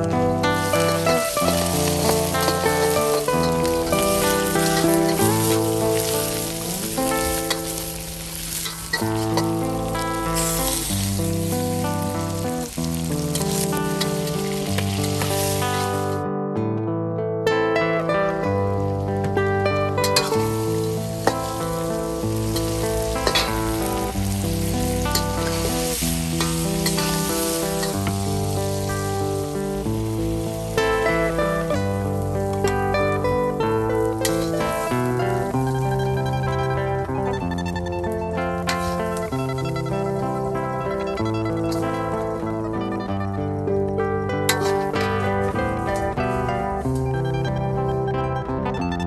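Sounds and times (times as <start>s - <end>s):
shrimp sizzling in hot oil: 0.0s - 16.2s, 18.2s - 47.6s
background music: 0.0s - 49.0s
metal spatula scraping wok: 0.5s - 11.5s, 12.1s - 16.1s, 20.0s - 29.3s, 34.0s - 35.5s, 38.6s - 42.4s, 44.5s - 46.5s.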